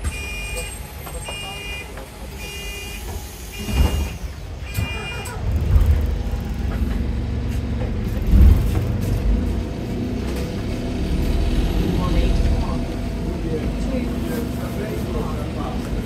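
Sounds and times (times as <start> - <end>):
bus engine rumble: 0.0 - 16.0
short high beeps: 2.4 - 5.4.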